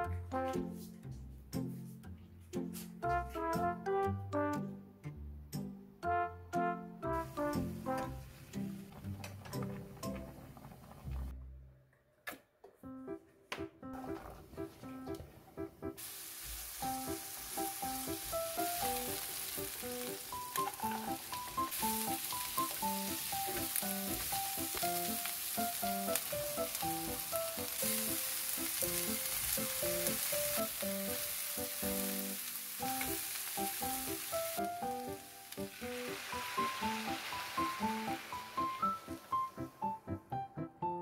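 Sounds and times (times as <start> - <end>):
light background music: 0.0 - 11.4, 12.8 - 41.0
vegetables sizzling in oil: 16.0 - 39.8.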